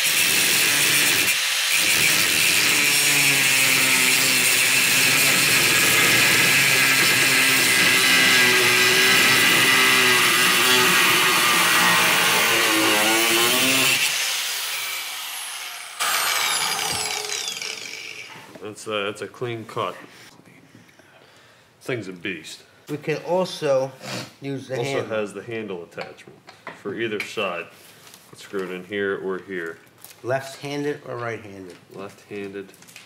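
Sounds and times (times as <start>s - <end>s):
angle grinder cutting metal rod: 0.0s - 18.4s.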